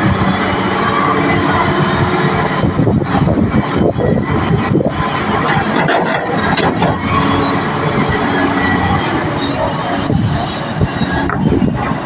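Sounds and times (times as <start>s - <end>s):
excavator diesel engine: 0.0s - 12.0s
metal clanks and knocks: 5.4s - 7.1s.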